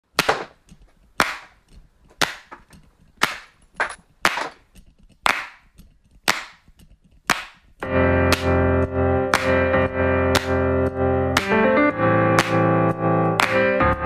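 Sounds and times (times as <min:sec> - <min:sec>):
sharp clap-like hits: 0:00.1 - 0:00.6, 0:01.2 - 0:01.6, 0:02.2 - 0:02.6, 0:03.2 - 0:03.6, 0:05.2 - 0:11.7, 0:12.3 - 0:13.9.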